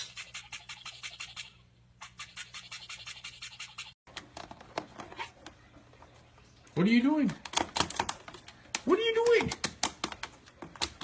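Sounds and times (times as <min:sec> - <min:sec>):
toothbrush scrubbing a beak: 0:00.0 - 0:04.0.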